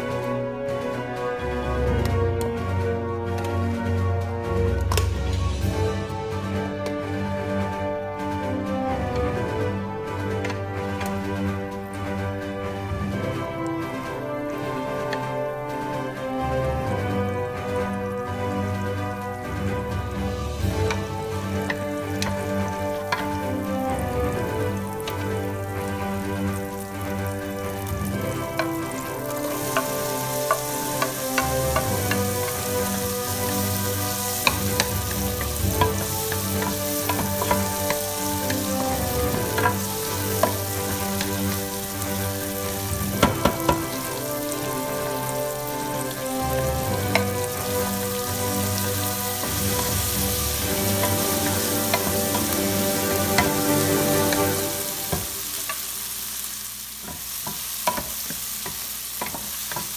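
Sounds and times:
onion sizzling in hot oil: 17.4 - 59.9
wooden spoon scraping a pan: 20.3 - 56.4, 57.0 - 59.9.

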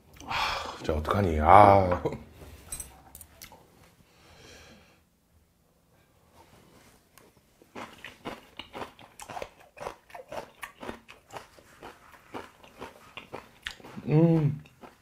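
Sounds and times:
crunchy chewing: 7.2 - 15.0.

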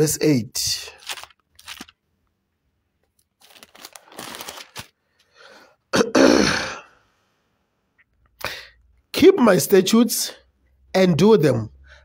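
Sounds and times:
pages turning: 0.8 - 2.0, 3.0 - 5.3.

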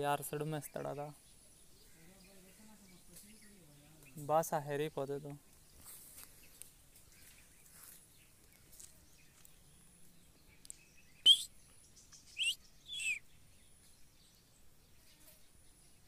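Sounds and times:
parakeet shrill calls: 12.4 - 13.2.

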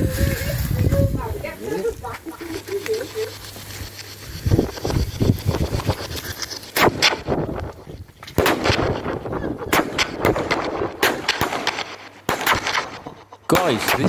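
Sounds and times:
firework bangs: 6.8 - 7.4, 8.4 - 14.0.

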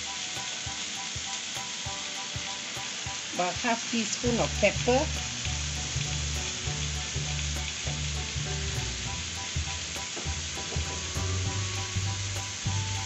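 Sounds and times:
food sizzling in hot oil: 0.0 - 13.0
low pulsing hum: 10.8 - 13.0.

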